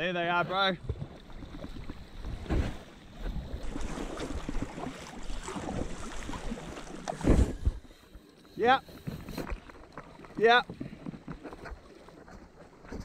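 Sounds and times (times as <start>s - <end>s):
water splashing around kayak: 0.0s - 13.0s.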